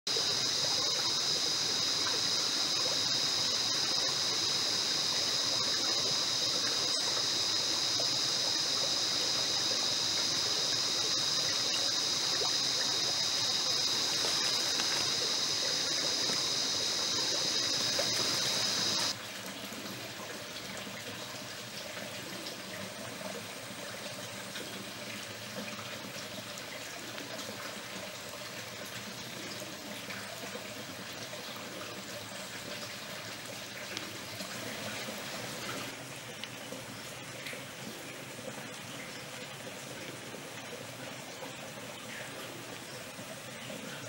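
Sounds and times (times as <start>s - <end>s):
high-pitched hiss: 0.1s - 19.2s
stream trickling: 0.1s - 44.0s.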